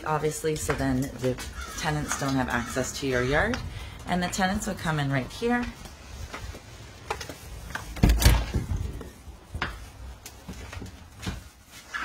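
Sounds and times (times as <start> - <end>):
footfalls going down stairs: 0.0 - 11.9
door being opened: 7.8 - 9.0.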